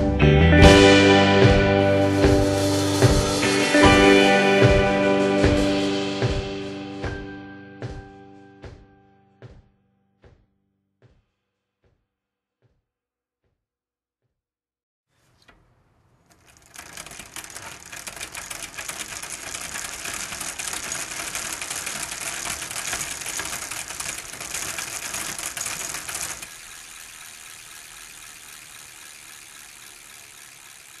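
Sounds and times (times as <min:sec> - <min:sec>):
rapid mechanical clattering: 0:15.4 - 0:31.0.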